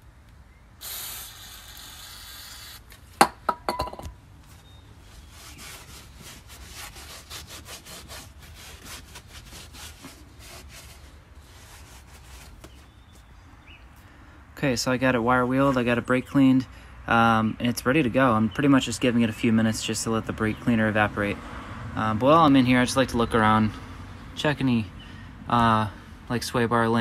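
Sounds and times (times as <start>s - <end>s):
aerosol spray hissing: 0.8s - 2.8s
rag rubbing strokes: 5.0s - 13.2s.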